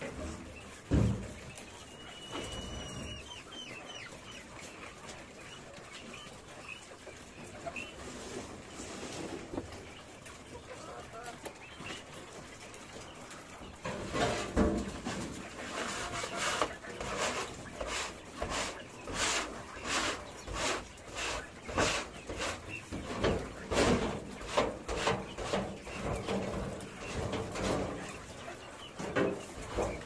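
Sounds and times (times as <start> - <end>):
hand scraper scraping tray: 13.9 - 28.1.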